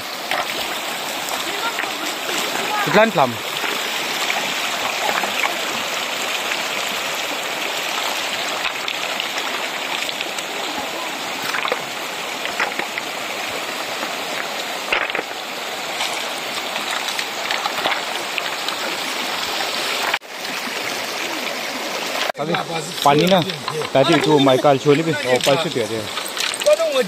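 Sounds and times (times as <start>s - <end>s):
river water rushing over rocks: 0.0s - 27.0s
small water splashes: 0.0s - 27.0s
stones knocking: 11.3s - 19.0s.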